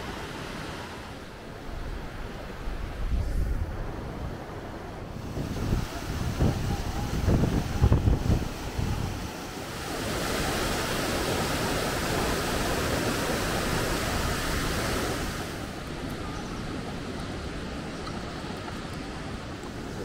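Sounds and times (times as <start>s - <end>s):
waterfall rushing: 5.2s - 18.4s.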